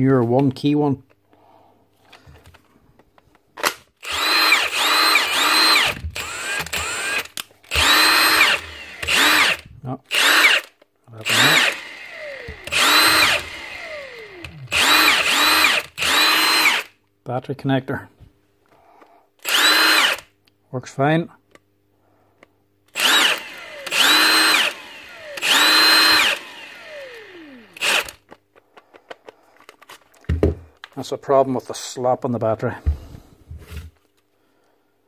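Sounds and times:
impact wrench motor bursts: 4.0s - 16.9s, 19.4s - 20.3s, 22.9s - 28.2s.

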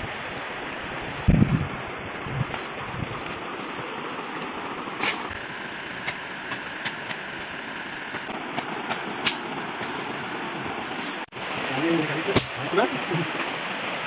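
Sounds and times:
flowing river: 0.0s - 14.0s
wooden sticks snapping: 8.2s - 10.0s.

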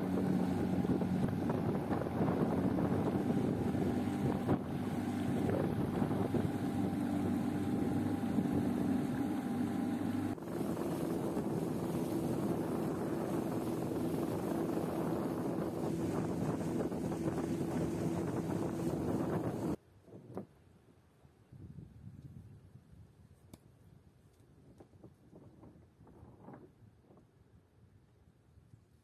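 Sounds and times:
outboard motor running: 0.0s - 19.8s
water rushing past hull: 0.0s - 19.8s
wind on microphone: 0.0s - 20.6s, 21.4s - 23.4s, 24.6s - 27.5s.

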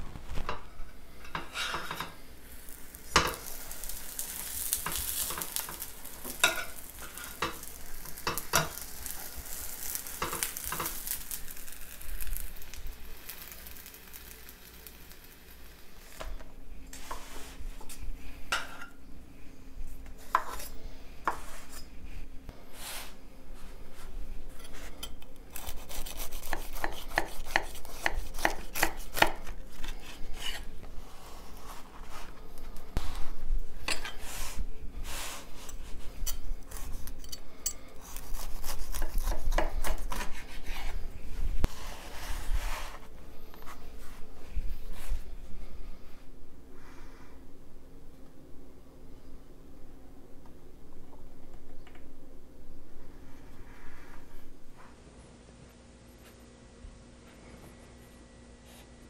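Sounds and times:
metal tongs scraping a pan: 0.5s - 2.2s, 3.2s - 11.3s
food sizzling in a frying pan: 1.4s - 16.4s.

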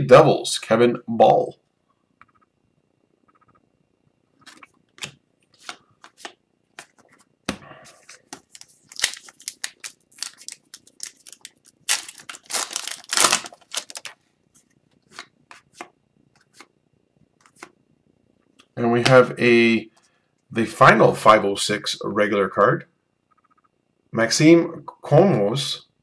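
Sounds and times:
foil wrapper tearing and crinkling: 8.4s - 14.2s.

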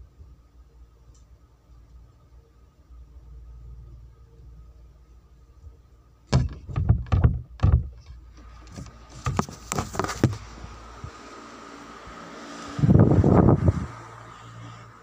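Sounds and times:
heavy footsteps thumping: 6.3s - 8.0s
sharp knocks and clicks: 6.3s - 10.4s.

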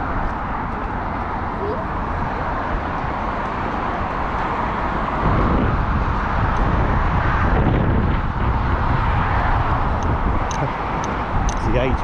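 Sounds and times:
road traffic rushing: 0.0s - 12.0s.

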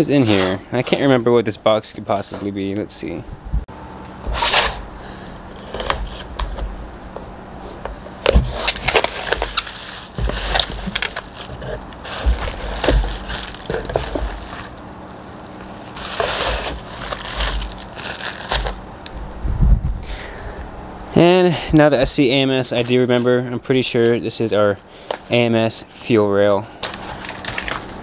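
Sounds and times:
knife slitting tape on cardboard: 4.2s - 4.8s
bubble wrap crinkling: 8.2s - 14.9s, 15.6s - 18.8s, 26.8s - 28.0s.

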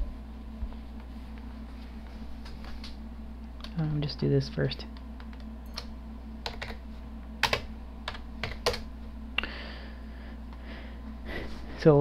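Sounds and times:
steady low hum: 0.0s - 12.0s
typing on computer keyboard: 5.3s - 6.8s, 7.4s - 8.8s.

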